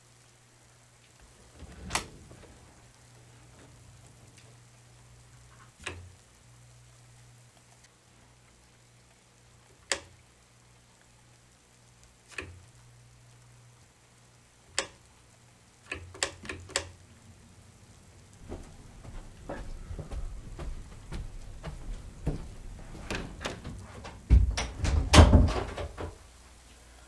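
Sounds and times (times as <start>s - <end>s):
light switch click: 9.9s - 10.1s
knocks and thumps: 18.4s - 26.2s.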